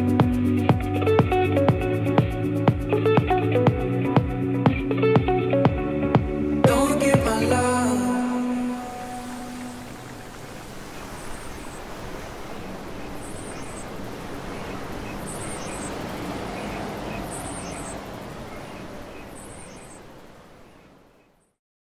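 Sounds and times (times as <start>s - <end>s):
wind: 0.0s - 21.6s
surf rushing: 6.6s - 21.3s
small bird chirping: 10.8s - 21.6s.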